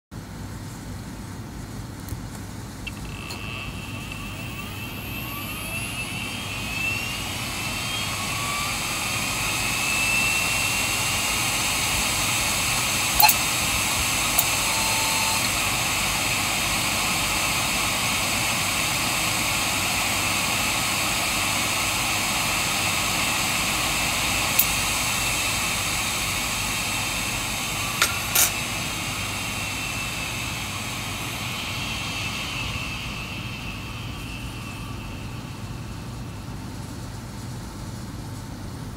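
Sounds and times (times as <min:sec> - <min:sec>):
hard drive spinning whine: 0:01.5 - 0:38.3.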